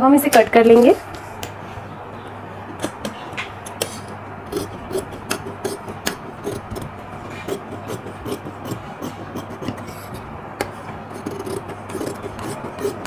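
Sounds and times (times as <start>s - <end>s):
scissors snipping fabric: 2.8s - 9.9s, 10.6s - 13.0s.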